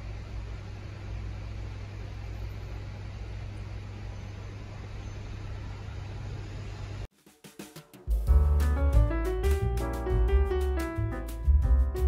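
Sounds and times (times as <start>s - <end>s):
electrical appliance hum and hiss: 0.0s - 7.1s.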